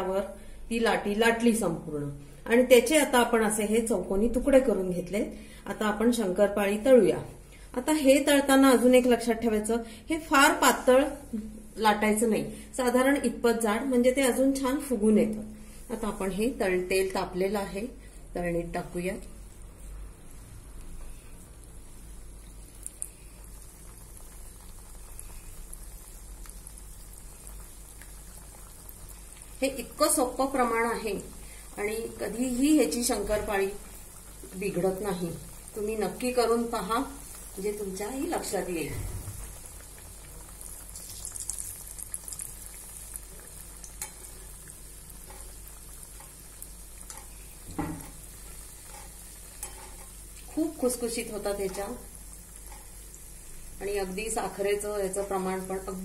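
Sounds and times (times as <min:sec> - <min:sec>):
dough bubbling in hot oil: 0:18.7 - 0:56.0.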